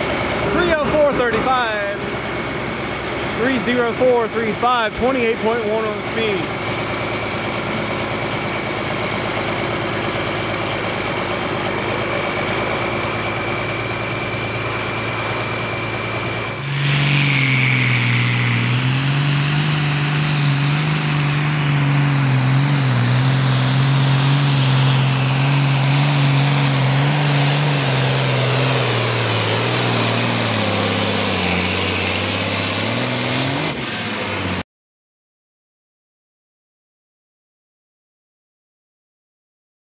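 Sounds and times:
tractor diesel engine roaring: 0.0s - 34.6s
turbo whistle: 16.6s - 19.1s.

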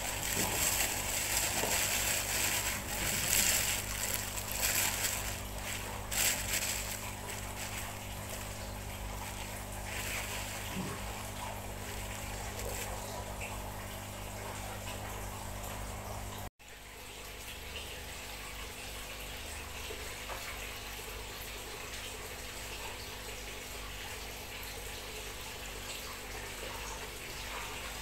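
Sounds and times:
hands digging in wet contents: 0.0s - 13.1s
plastic bag crinkling: 0.0s - 13.5s.

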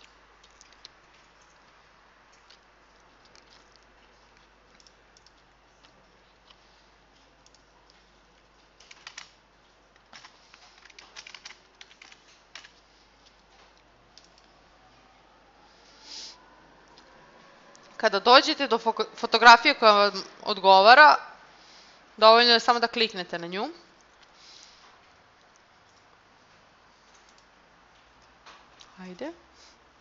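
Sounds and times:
typing on computer keyboard: 8.8s - 9.4s, 10.0s - 12.8s.

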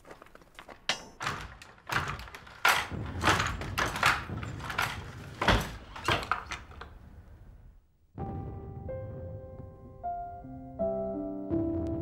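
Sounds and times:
wooden handloom clacking: 0.0s - 6.9s.

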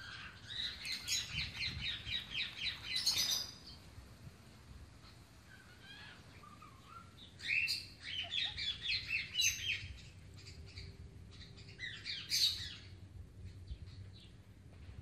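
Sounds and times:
parrot chirps and squawks: 5.5s - 9.8s.

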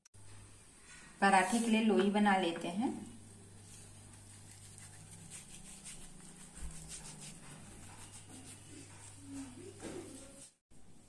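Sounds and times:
hands rolling dough: 3.2s - 10.6s.

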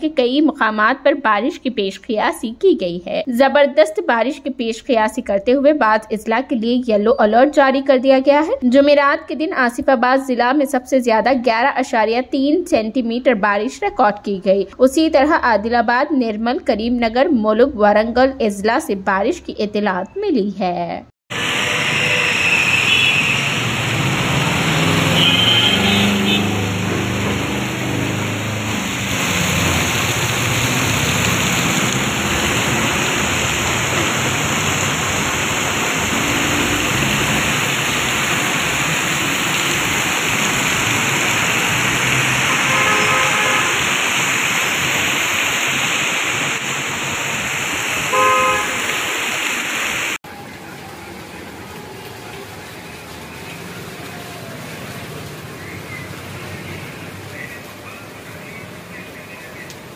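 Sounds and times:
heavy rain on road: 21.3s - 59.9s
vehicles driving on wet road: 21.3s - 59.9s
vehicle horns honking: 21.8s - 23.6s, 25.0s - 26.8s, 42.4s - 44.0s, 48.1s - 49.0s.

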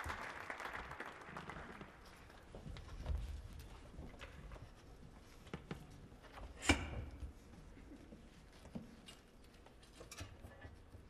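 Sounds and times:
small knocks and shuffles: 2.0s - 11.0s.

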